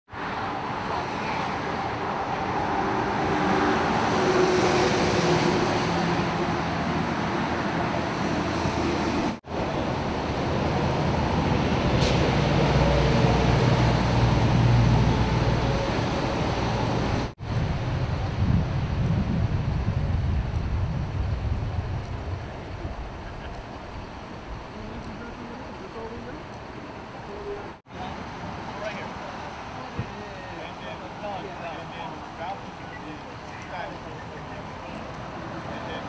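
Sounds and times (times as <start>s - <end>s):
traffic noise: 0.1s - 36.0s
idling engines hum: 20.1s - 36.0s.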